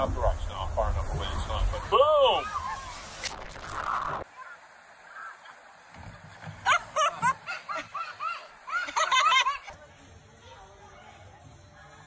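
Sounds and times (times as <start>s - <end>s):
people shrieking: 1.8s - 3.1s.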